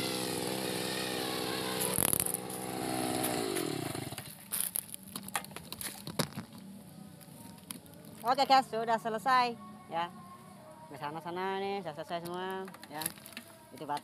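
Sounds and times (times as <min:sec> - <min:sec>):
brush cutter engine running: 0:00.0 - 0:04.3.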